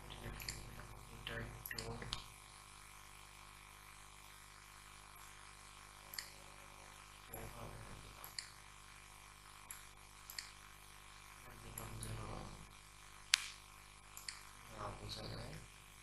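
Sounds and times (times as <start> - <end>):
low steady hum: 0.0 - 16.0
computer mouse clicking: 9.7 - 10.6, 13.3 - 14.4.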